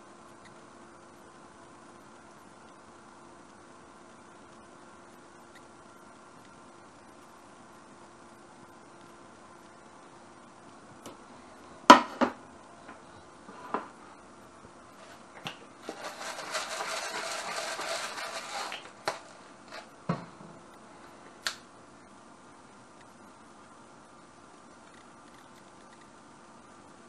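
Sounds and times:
pepper mill grinding: 0:15.8 - 0:19.9.

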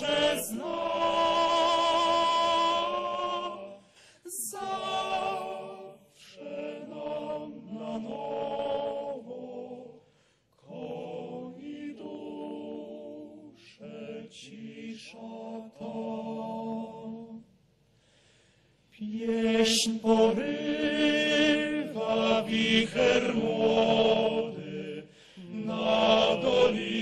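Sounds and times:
male choir singing a cappella: 0:00.0 - 0:17.4, 0:19.0 - 0:27.0
singers' breaths: 0:03.8 - 0:04.4, 0:10.0 - 0:10.6, 0:17.8 - 0:19.0, 0:25.0 - 0:25.7.

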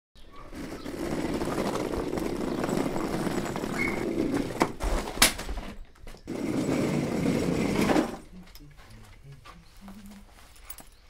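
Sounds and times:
suitcase wheels rattling: 0:00.2 - 0:08.3.

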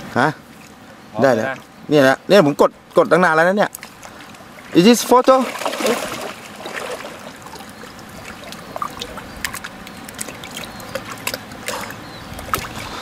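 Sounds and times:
water lapping and dripping: 0:00.0 - 0:01.8, 0:02.8 - 0:13.0
small drips and splashes: 0:03.7 - 0:13.0.

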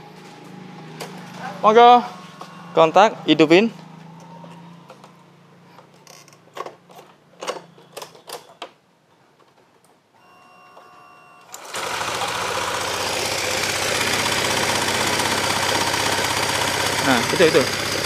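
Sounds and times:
scooter engine rattling: 0:00.3 - 0:08.4, 0:11.6 - 0:18.0
short steady whine: 0:01.9 - 0:04.9.

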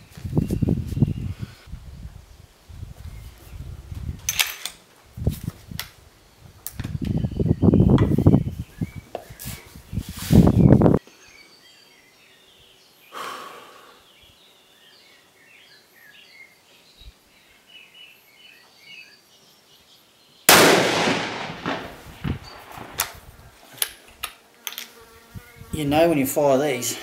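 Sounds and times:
small birds chirping: 0:00.0 - 0:01.7, 0:06.2 - 0:20.5, 0:21.6 - 0:22.9
rifle shot with echo: 0:20.5 - 0:23.2.

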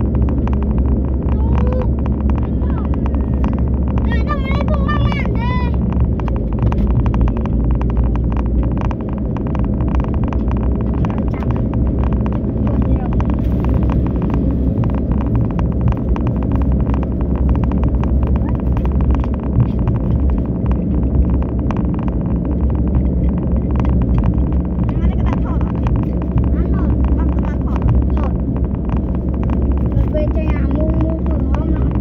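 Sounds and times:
car engine and tyre rumble: 0:00.0 - 0:32.0.

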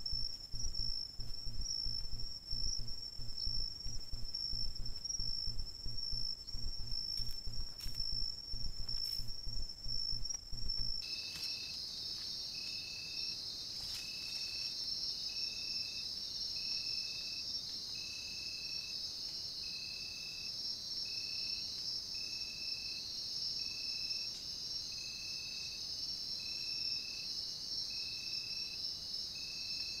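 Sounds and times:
low thumps near microphone: 0:00.0 - 0:11.0
crickets trilling: 0:00.0 - 0:30.0
high insect chorus: 0:00.0 - 0:30.0.

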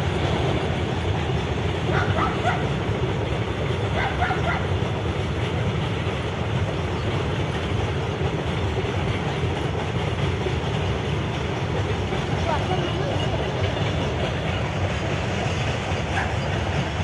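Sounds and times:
freight train rumbling past: 0:00.0 - 0:17.0.

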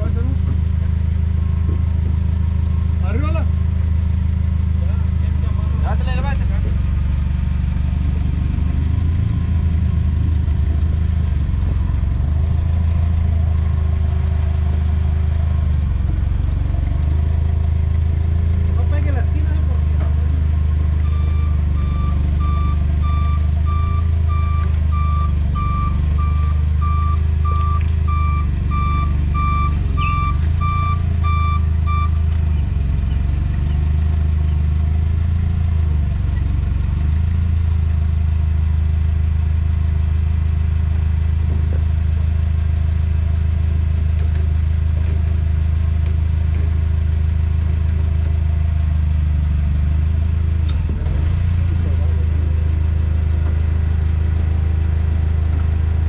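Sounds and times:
warning beeper: 0:21.0 - 0:32.2.

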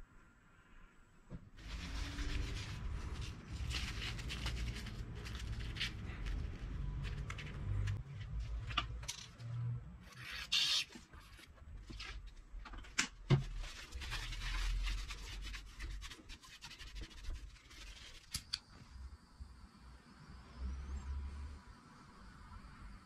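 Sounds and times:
paper towel scrubbing metal: 0:01.6 - 0:08.0, 0:13.4 - 0:18.3.

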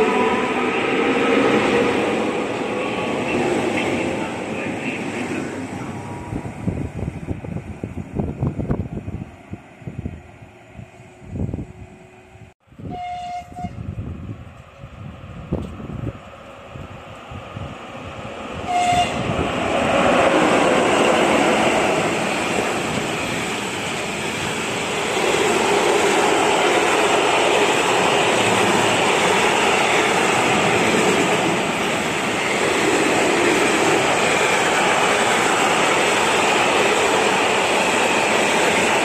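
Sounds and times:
train wheels rushing on rails: 0:00.0 - 0:10.3, 0:13.5 - 0:39.0
train horn blast: 0:12.8 - 0:13.9, 0:18.6 - 0:19.3.

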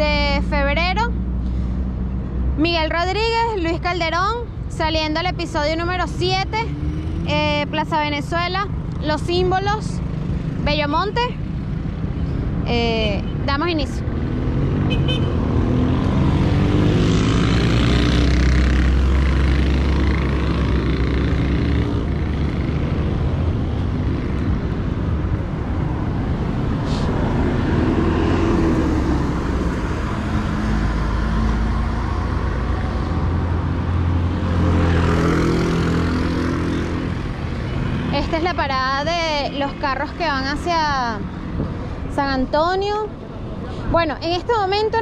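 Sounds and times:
bus engines running: 0:00.0 - 0:45.0
city traffic engines: 0:00.0 - 0:45.0.

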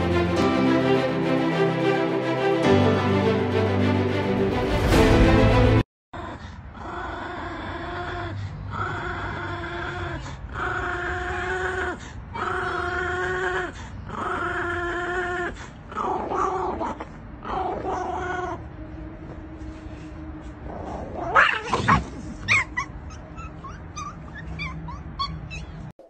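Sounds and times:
small dog growling: 0:06.2 - 0:18.6.

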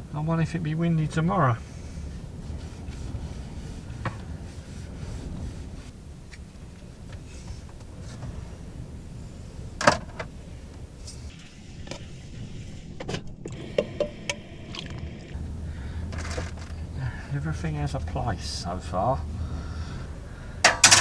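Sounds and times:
low steady rumble: 0:00.0 - 0:21.0.

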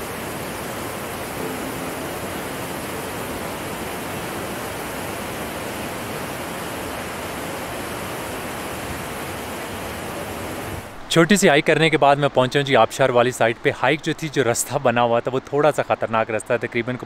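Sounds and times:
waterfall rushing over boulders: 0:00.0 - 0:11.0.

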